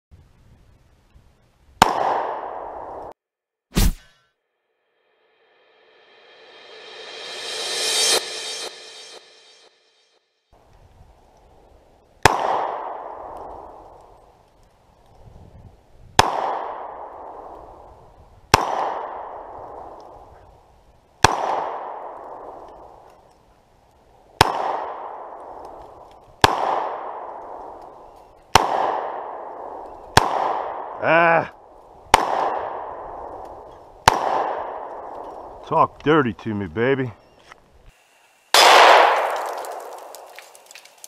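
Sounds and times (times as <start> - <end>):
pistol shots with echo: 1.8 - 3.0, 12.2 - 13.8, 16.2 - 17.5, 18.5 - 20.0, 21.2 - 22.7, 24.4 - 25.7, 26.4 - 27.8, 28.5 - 31.0, 32.1 - 33.4, 34.0 - 35.5, 38.6 - 40.2.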